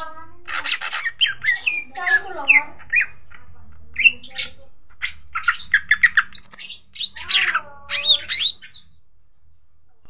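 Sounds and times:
bird singing: 0.0s - 9.7s
bird harsh squawk: 0.4s - 3.2s, 4.0s - 8.9s.

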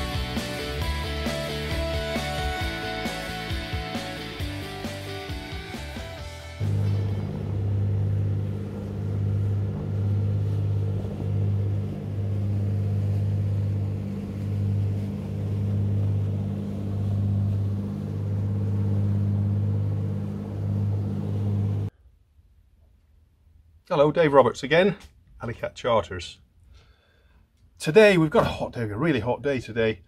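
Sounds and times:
boat engine droning: 6.6s - 21.9s.

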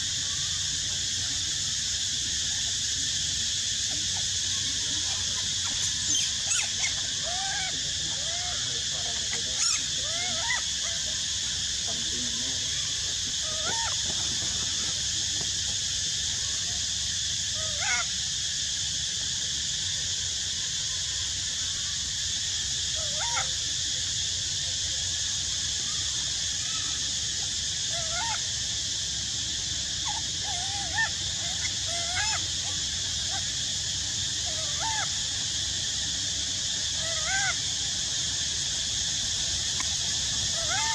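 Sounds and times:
steady high hiss: 0.0s - 40.9s
monkey whimpering coo calls: 5.6s - 8.6s, 9.6s - 11.0s, 13.4s - 14.0s, 30.0s - 33.4s, 34.4s - 35.1s, 37.0s - 37.6s, 40.6s - 40.9s.

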